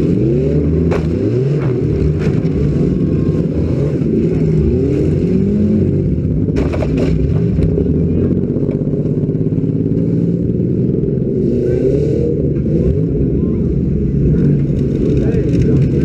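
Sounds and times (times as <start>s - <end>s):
car engine revving: 0.0s - 16.0s.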